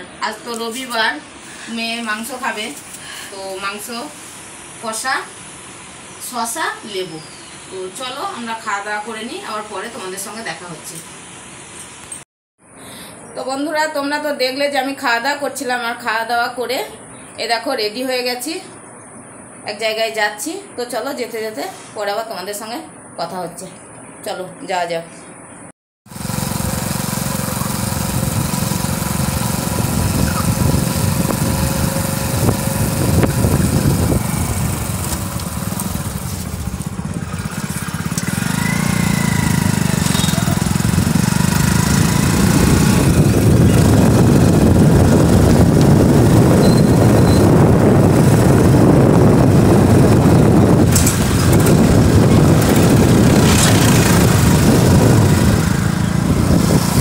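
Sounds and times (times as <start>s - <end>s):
road and wind noise: 25.2s - 57.0s.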